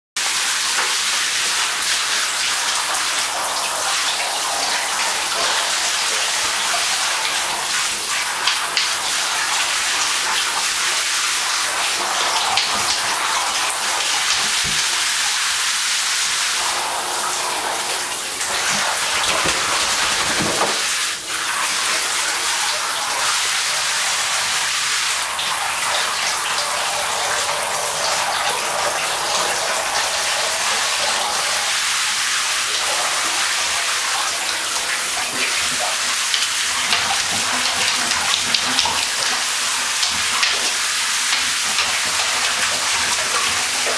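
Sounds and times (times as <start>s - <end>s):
water running into bathtub: 0.2s - 43.9s
dog sloshing in bath water: 16.6s - 22.4s.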